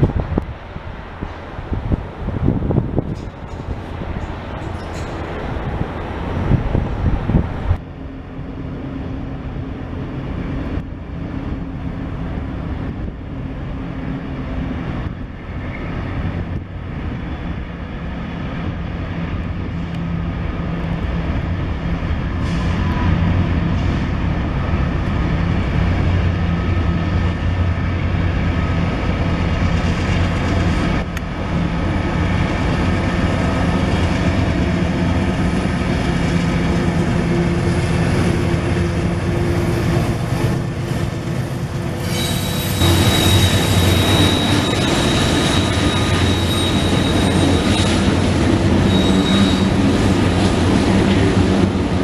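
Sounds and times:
diesel locomotive engine drone: 0.0 - 52.0.

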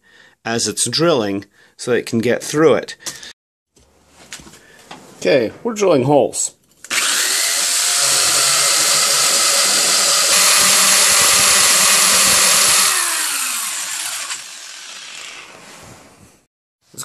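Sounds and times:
hammer drill boring into block: 6.9 - 15.5.

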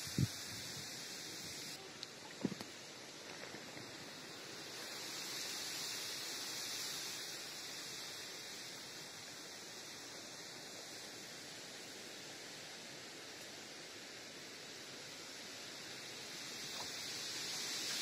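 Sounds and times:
faint hiss: 0.0 - 18.0.

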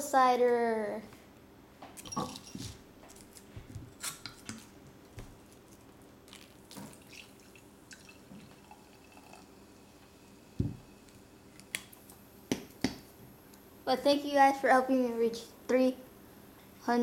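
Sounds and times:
cider pouring into a glass: 6.3 - 10.0
low thump: 10.6 - 10.8.

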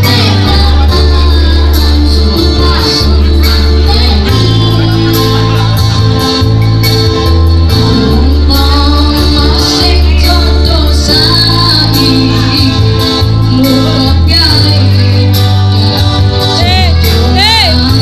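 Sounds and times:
girl and boy singing: 0.0 - 5.7
keyboard with heavy bass: 0.0 - 18.0.

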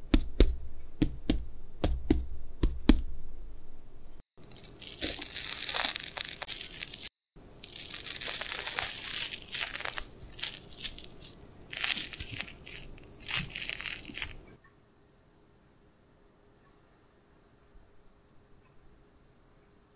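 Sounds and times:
omelette tearing and crackling: 4.4 - 14.6.

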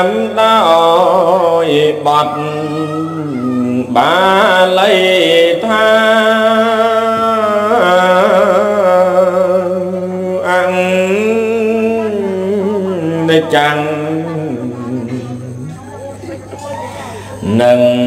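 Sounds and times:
monk chanting solo: 0.0 - 15.6.

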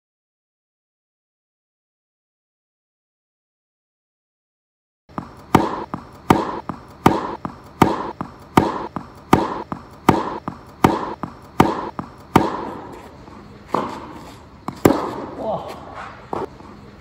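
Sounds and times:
tennis ball pops: 5.1 - 13.0, 13.7 - 14.1, 14.7 - 15.4.

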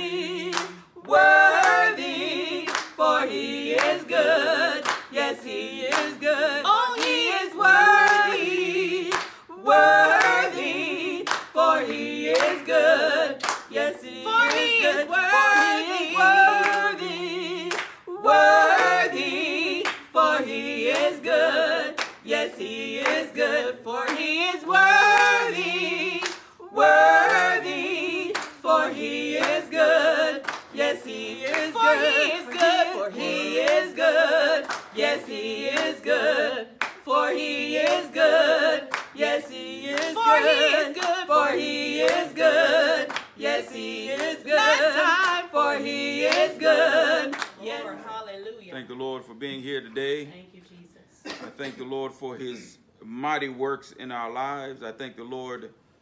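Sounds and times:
women singing a cappella: 0.0 - 48.6
hand claps: 0.5 - 1.9, 2.7 - 3.1, 3.7 - 4.0, 4.8 - 5.3, 5.9 - 6.2, 7.0 - 7.2, 8.0 - 8.4, 9.1 - 9.4, 11.2 - 12.8, 13.4 - 14.8, 17.7 - 18.0, 26.2 - 26.5, 28.3 - 29.8, 30.4 - 36.0, 36.8 - 37.1, 37.8 - 38.2, 38.9 - 39.4, 43.1 - 43.6.

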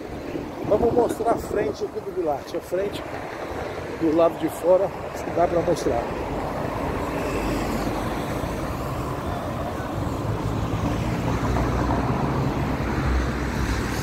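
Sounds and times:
road traffic rush: 0.0 - 14.0
low engine hum: 6.1 - 14.0.

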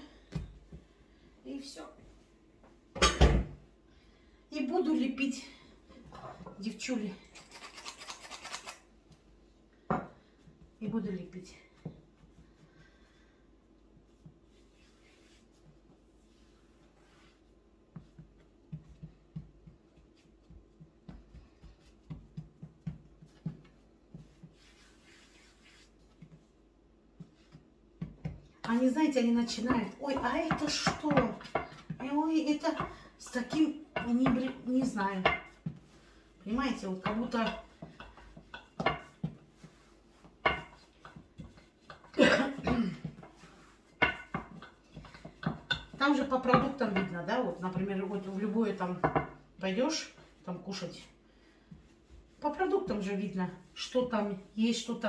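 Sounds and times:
soft rustle: 10.2 - 27.9, 34.5 - 42.2, 43.0 - 46.3
woman coughing: 42.1 - 43.0
woman clearing throat: 42.2 - 43.0.

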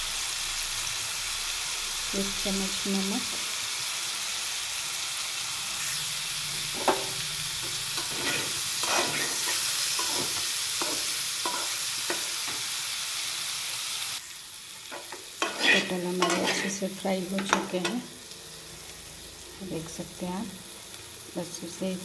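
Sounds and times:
jackfruit sizzling in oil: 0.0 - 22.0
spoon scraping and knocking a pan: 6.7 - 12.6, 14.9 - 16.8, 17.4 - 18.0.

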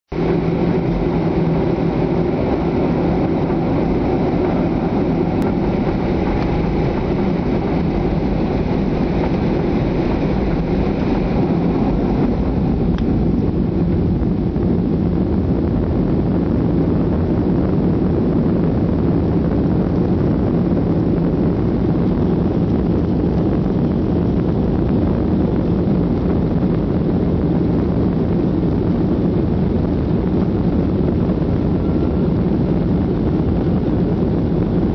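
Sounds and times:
airframe rumble: 0.1 - 34.9
jet engine hum: 0.1 - 34.9
steady low tones: 0.1 - 34.9.

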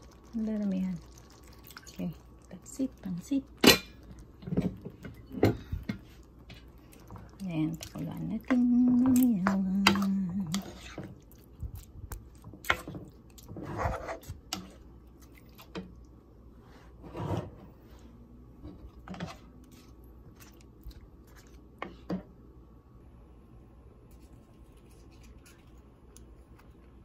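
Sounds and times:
wet squelching stirs: 0.0 - 16.3, 17.8 - 22.2.

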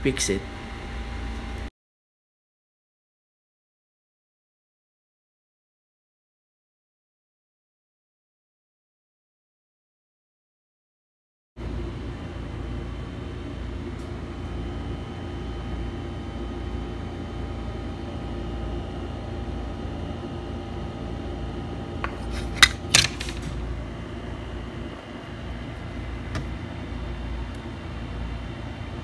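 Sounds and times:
room hum and hiss: 0.0 - 1.7, 11.7 - 29.0.

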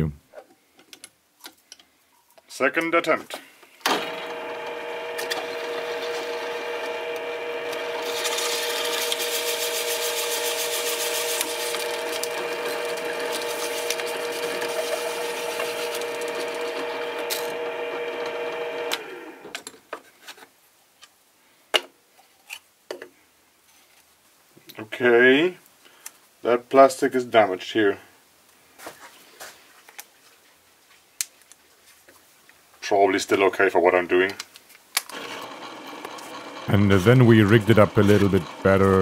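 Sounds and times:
drill press motor running: 3.9 - 19.6, 35.1 - 39.0
drill bit scraping plastic: 4.0 - 19.6, 35.1 - 39.0.

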